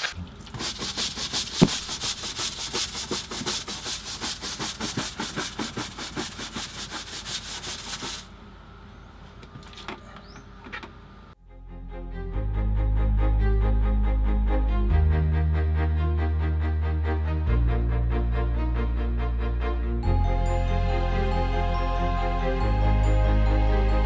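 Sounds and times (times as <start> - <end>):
brush scrubbing wet deck: 0.0 - 8.3
music: 11.4 - 24.0.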